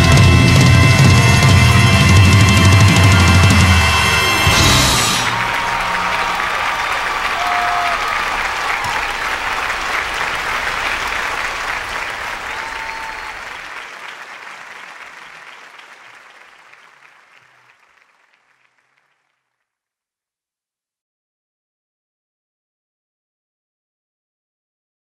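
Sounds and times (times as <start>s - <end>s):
audience applauding: 0.0s - 19.6s.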